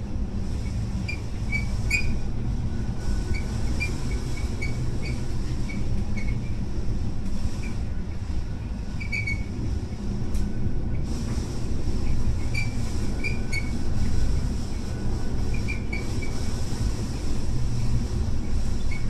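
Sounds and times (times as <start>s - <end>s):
wind and sea: 0.0s - 19.0s.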